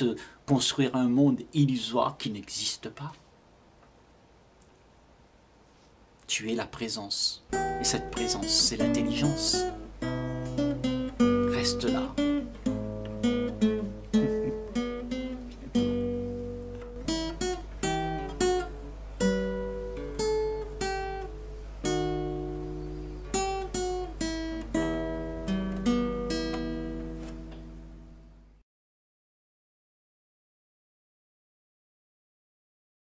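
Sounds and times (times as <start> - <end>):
acoustic guitar picking: 7.5 - 28.5.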